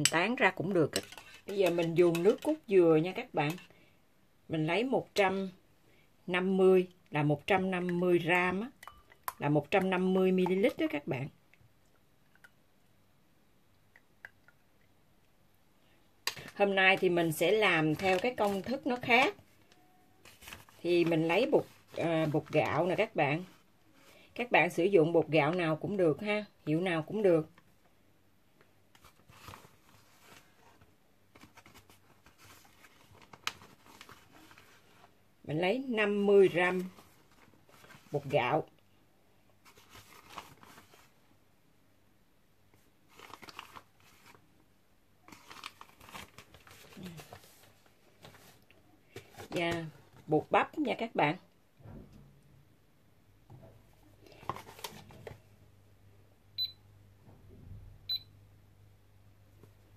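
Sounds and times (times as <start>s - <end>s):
metal spoon scraping a bowl: 0.0s - 2.7s.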